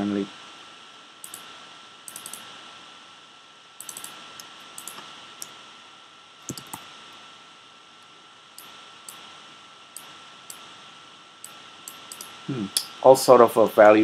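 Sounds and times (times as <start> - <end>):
faint constant high tone: 0.0 - 14.0
steady hiss: 0.0 - 14.0
mouse clicks: 1.2 - 1.5, 2.1 - 2.5, 3.8 - 5.6, 6.5 - 6.9, 11.4 - 12.9
keyboard keystrokes: 3.8 - 4.2, 6.5 - 6.8.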